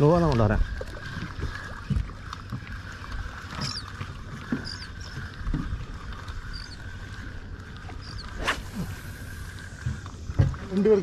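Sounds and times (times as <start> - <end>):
boat engine humming: 0.0 - 11.0
faint high squeaks: 3.5 - 5.2.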